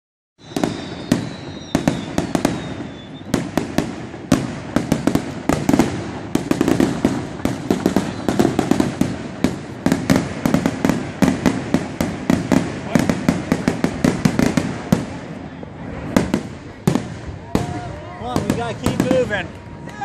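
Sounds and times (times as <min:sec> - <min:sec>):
fireworks bangs and crackles: 0:00.4 - 0:20.0
whistling firework: 0:00.4 - 0:20.0.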